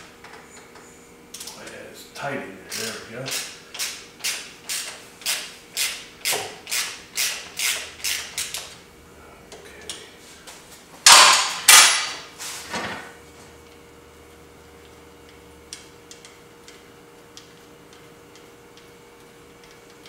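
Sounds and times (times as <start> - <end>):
ratchet wrench clicking: 2.7 - 8.7
loud metal knocks: 11.1 - 12.2.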